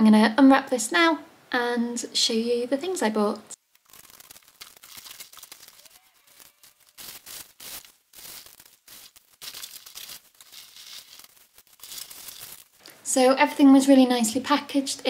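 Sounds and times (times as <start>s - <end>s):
packing material rustling: 3.6s - 12.8s
tape tearing off cardboard: 3.7s - 12.8s.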